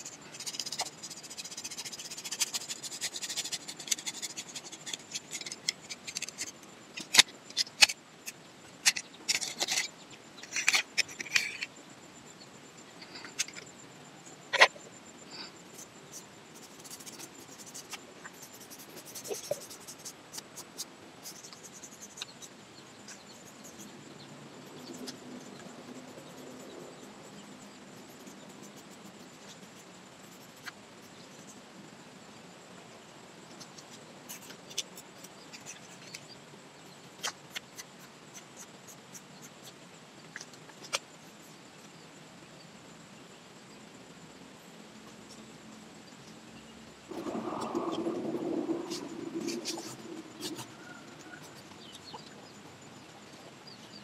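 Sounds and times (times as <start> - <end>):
toothbrush scratching bark: 0.0 - 11.6, 15.7 - 23.9, 24.6 - 31.6, 33.6 - 39.8, 48.9 - 52.2.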